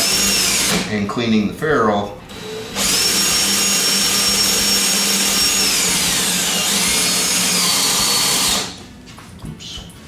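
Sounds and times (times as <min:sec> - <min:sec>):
cordless drill whining: 0:00.0 - 0:00.8, 0:02.3 - 0:08.8.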